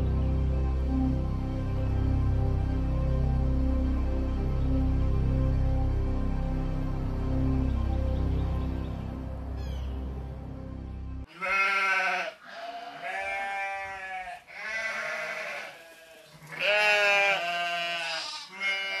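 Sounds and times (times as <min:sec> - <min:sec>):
background music: 0:00.0 - 0:12.2
drawn-out bleating calls: 0:11.3 - 0:19.0.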